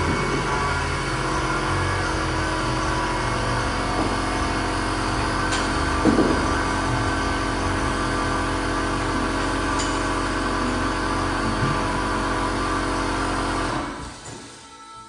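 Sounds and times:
motor droning: 0.0s - 14.0s.

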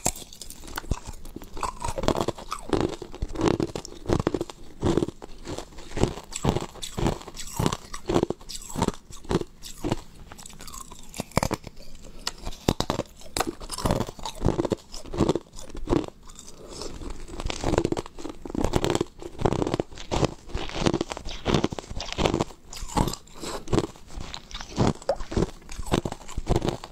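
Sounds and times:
ice crunching and chewing: 0.0s - 26.9s.

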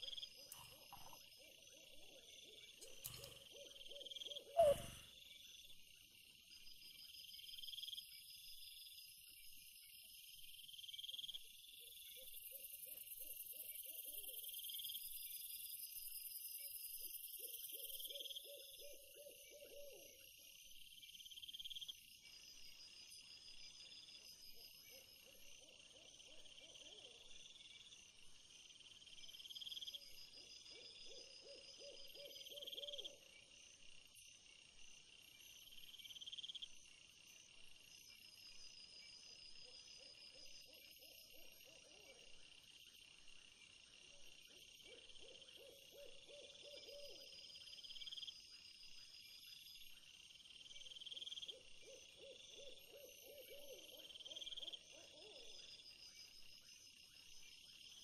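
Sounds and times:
insects chirping in bursts: 0.0s - 11.8s, 31.2s - 41.7s, 46.5s - 58.0s
low wavering hoot-like call: 3.0s - 5.1s.

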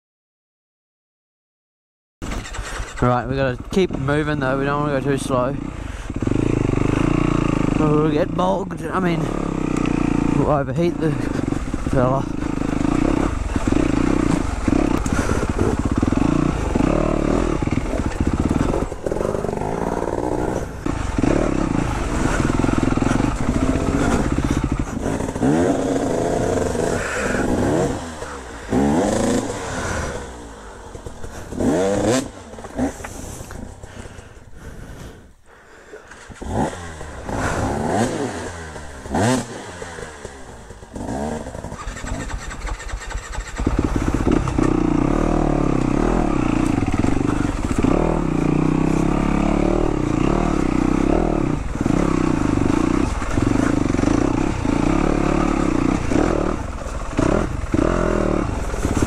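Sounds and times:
dirt bike engine revving: 2.2s - 35.2s, 35.9s - 59.0s.

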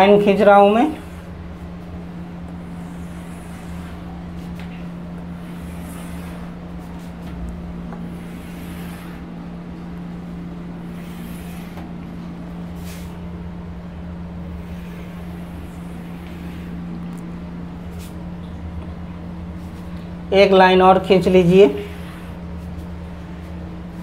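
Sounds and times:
steady low hum: 0.0s - 24.0s
pen scraping while writing: 5.4s - 6.6s, 10.9s - 11.9s.

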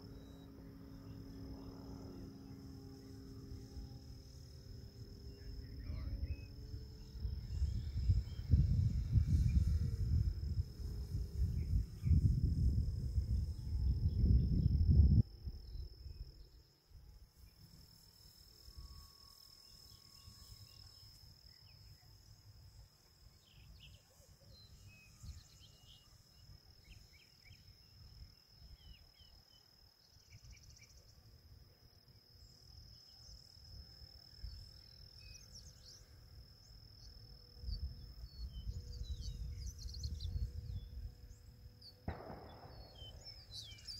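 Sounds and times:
faint chirps: 0.0s - 31.4s, 32.1s - 43.9s
distant model airplane motor drone: 0.0s - 43.9s
insect trill: 0.0s - 43.9s
wind buffeting microphone: 7.0s - 15.8s.

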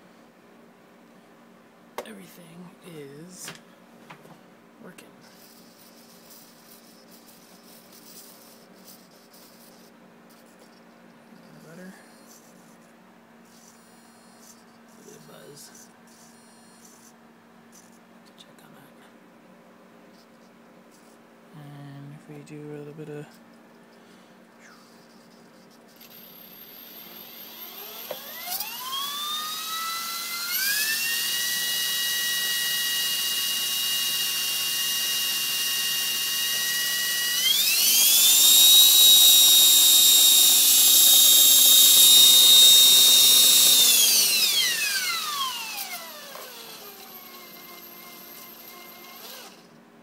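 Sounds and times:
rc helicopter motor whining: 25.9s - 49.7s.

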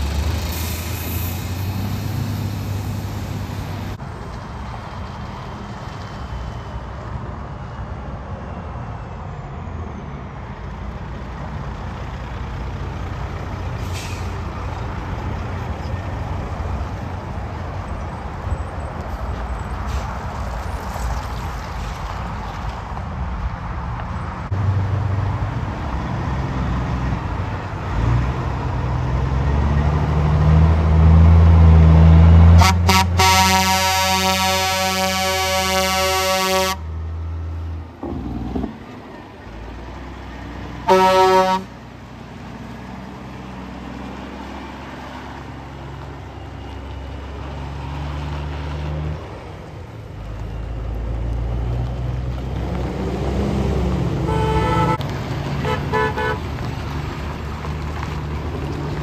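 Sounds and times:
truck diesel engine pulling away: 0.0s - 59.0s
truck air horn blasts: 32.6s - 36.8s, 40.8s - 41.8s, 54.2s - 55.0s, 55.6s - 56.4s.

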